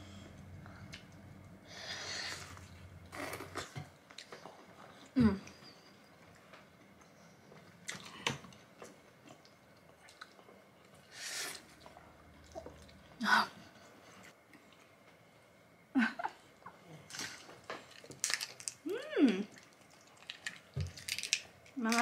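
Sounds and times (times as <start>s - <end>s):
close-up chewing: 19.5s - 21.4s.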